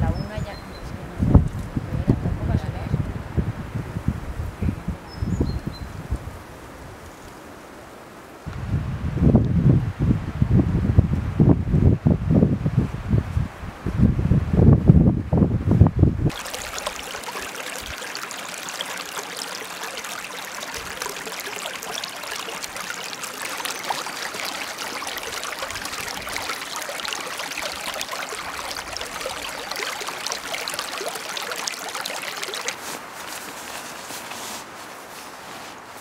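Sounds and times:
stream trickling over pebbles: 0:16.3 - 0:35.4.

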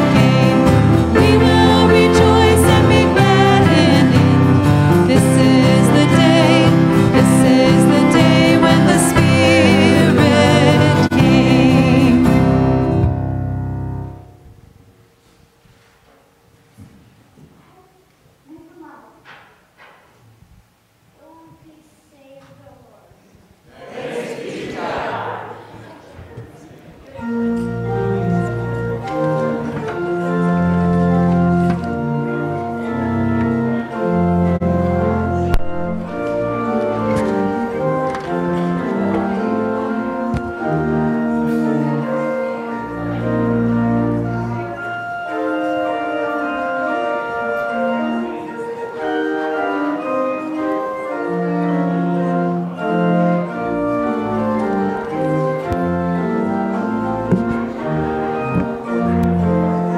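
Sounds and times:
organ pedal bass notes: 0:00.0 - 0:14.6, 0:27.2 - 0:59.9
church organ chords: 0:00.0 - 0:14.8, 0:27.1 - 0:59.9.

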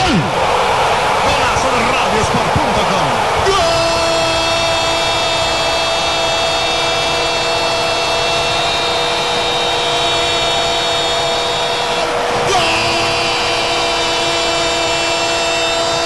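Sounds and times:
stadium crowd roaring: 0:00.0 - 0:16.0
droning tones: 0:03.5 - 0:16.0.

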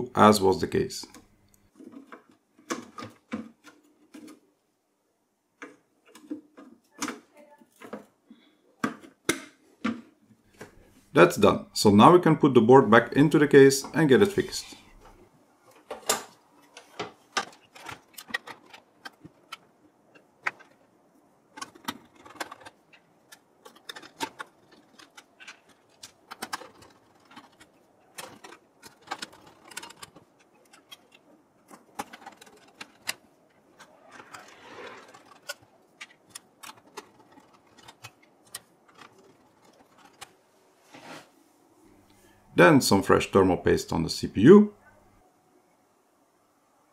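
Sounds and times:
metallic clicks and knocks: 0:15.0 - 0:40.3
scraping: 0:21.4 - 0:41.4.

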